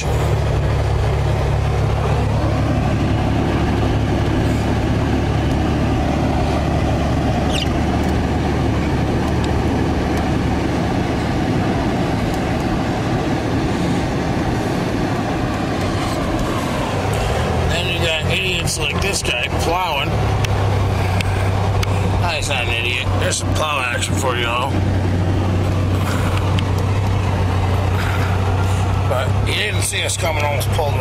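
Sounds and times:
car road and engine noise: 0.0 - 31.0
tyres rumbling on snow: 0.0 - 31.0
rising squeak: 7.3 - 7.9.

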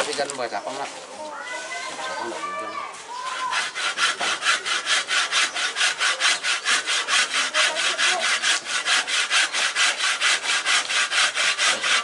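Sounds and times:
hand saw cutting wood: 3.1 - 12.0.

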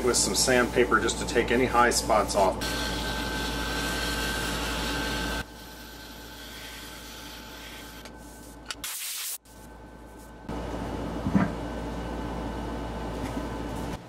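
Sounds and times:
lathe motor whine: 0.0 - 8.2
sanding pad hissing: 2.6 - 9.4.

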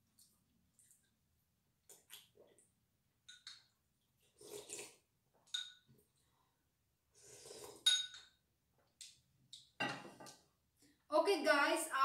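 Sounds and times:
soft sipping: 4.1 - 5.0, 7.1 - 7.9
metal spoon clinking ceramic bowl: 5.5 - 5.9, 7.9 - 8.4.

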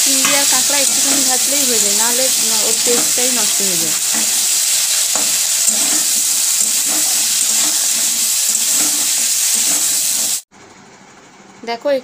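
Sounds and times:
metal spatula scraping pan: 0.0 - 10.1
crab sizzling in oil: 0.0 - 10.5.

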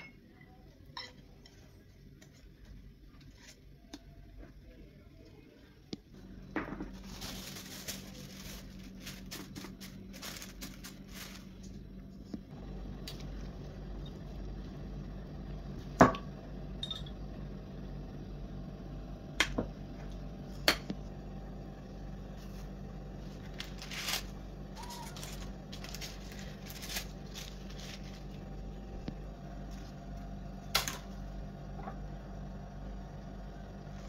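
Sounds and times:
steady low hum: 0.0 - 34.0
parchment paper rustling: 6.8 - 12.2, 22.3 - 30.2.

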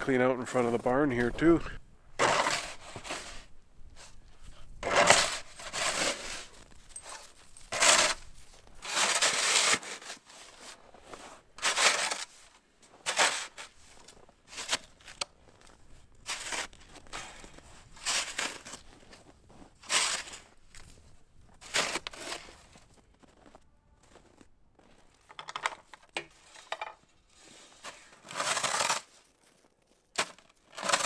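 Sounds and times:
snow shovel scraping snow: 2.2 - 4.2, 4.8 - 15.2, 16.2 - 20.6, 21.6 - 22.9, 27.3 - 29.3, 30.2 - 31.0.

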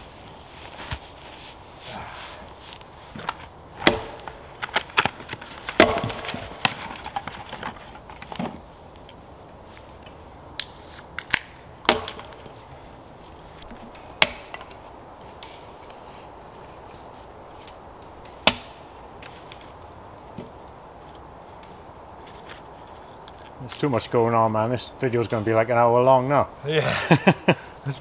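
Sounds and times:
axe chopping wood: 3.8 - 4.4, 5.7 - 6.8, 11.3 - 12.5, 14.2 - 14.7, 18.4 - 18.8.

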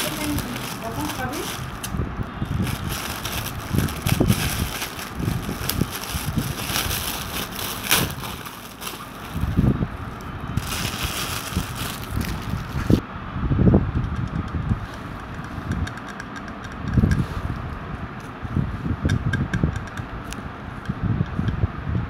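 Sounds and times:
cellophane crinkling and rustling: 0.0 - 1.9, 2.5 - 13.0.

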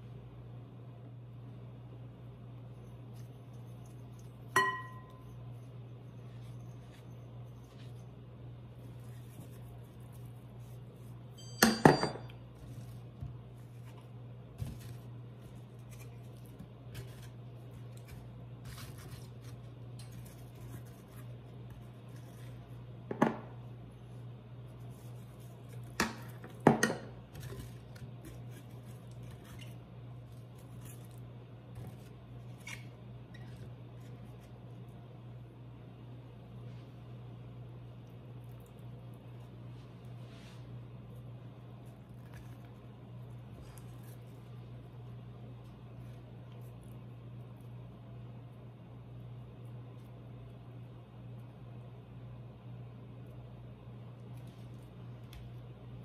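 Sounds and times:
steady low hum: 0.0 - 56.0
bowls and pan clinking: 4.6 - 5.3.

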